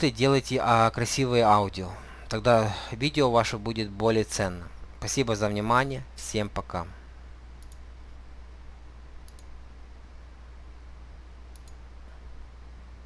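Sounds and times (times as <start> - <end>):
steady low hum: 0.0 - 13.0
computer mouse clicks: 7.6 - 7.9, 9.2 - 9.6, 11.5 - 11.8.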